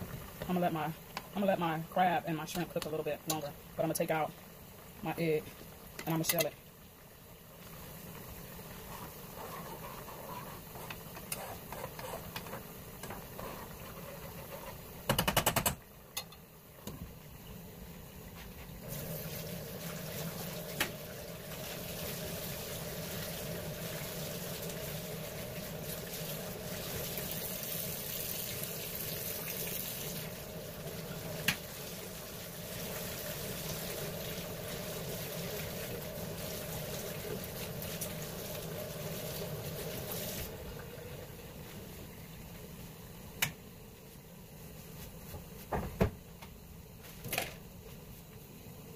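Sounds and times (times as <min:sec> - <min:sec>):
pot bubbling: 0:00.0 - 0:44.8
water rushing from tap: 0:18.8 - 0:40.8.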